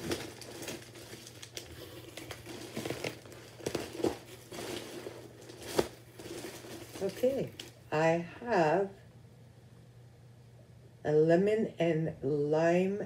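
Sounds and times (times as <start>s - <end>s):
packaging crinkling and rustling: 0.0s - 7.9s.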